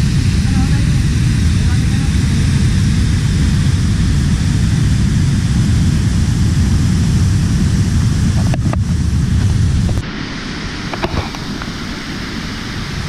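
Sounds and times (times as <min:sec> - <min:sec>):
waterfall roaring: 0:00.0 - 0:13.0.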